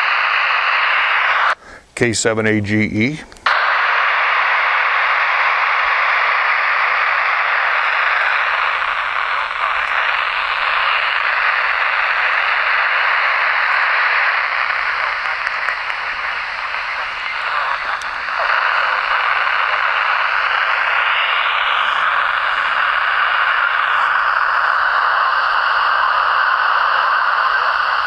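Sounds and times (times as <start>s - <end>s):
radio static hiss: 0.0s - 28.0s.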